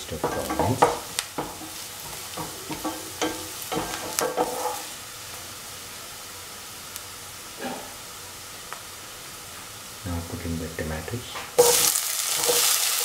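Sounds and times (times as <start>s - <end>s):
onions sizzling in oil: 0.0s - 13.0s
spatula scraping pan: 0.1s - 5.0s, 11.6s - 13.0s.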